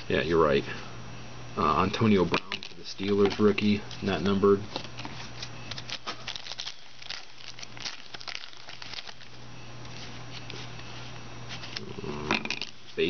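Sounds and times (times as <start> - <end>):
foil wrapper crinkling: 4.9 - 10.8.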